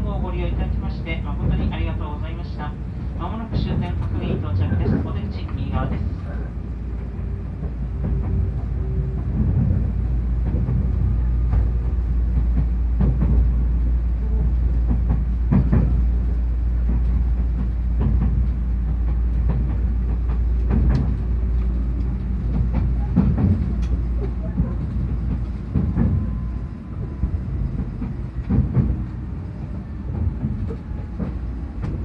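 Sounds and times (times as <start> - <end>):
train running rumble: 0.0 - 32.0
wheels clacking over rail joints: 6.8 - 32.0.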